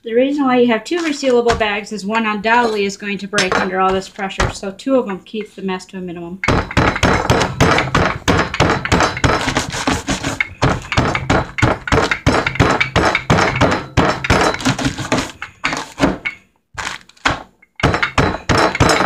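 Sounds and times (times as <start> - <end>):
rolling pin thudding on bagged nuts: 0.9 - 4.6, 6.4 - 19.0
nuts cracking: 16.8 - 19.0.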